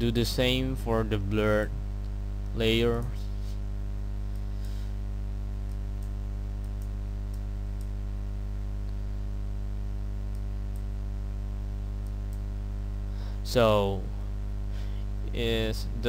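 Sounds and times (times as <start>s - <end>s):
electrical mains hum: 0.0s - 16.0s
faint clicks: 5.6s - 8.0s, 10.3s - 10.9s.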